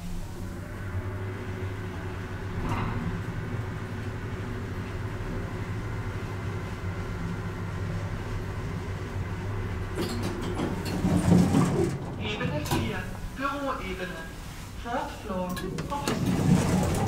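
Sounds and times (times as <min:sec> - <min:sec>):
elevator doors sliding open: 0:00.0 - 0:14.7, 0:15.3 - 0:17.0
elevator humming: 0:00.0 - 0:17.0
elevator clicking and rattling: 0:09.6 - 0:13.8, 0:15.4 - 0:17.0.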